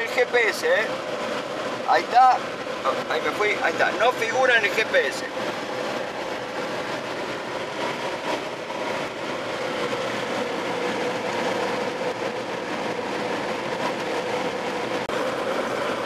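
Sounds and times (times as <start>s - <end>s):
car interior road noise: 0.0s - 16.0s
constant low hum: 0.0s - 16.0s.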